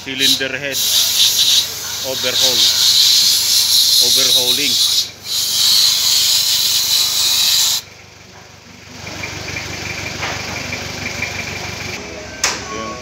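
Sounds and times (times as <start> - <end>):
high-pressure spray hissing: 0.2 - 7.8.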